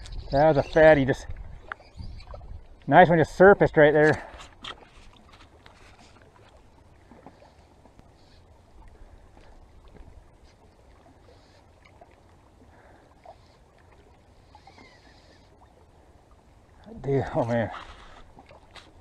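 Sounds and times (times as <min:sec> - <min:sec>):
water lapping: 0:00.0 - 0:19.0.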